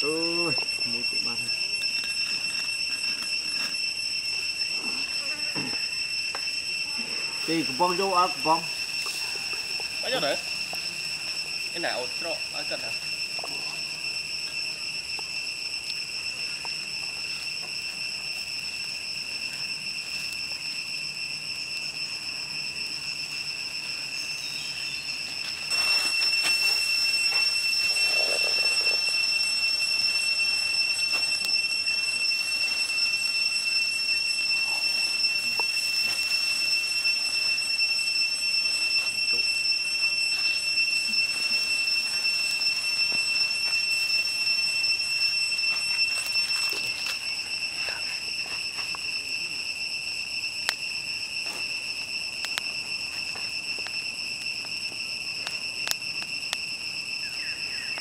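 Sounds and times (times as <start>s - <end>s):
cicadas droning: 0.0s - 58.0s.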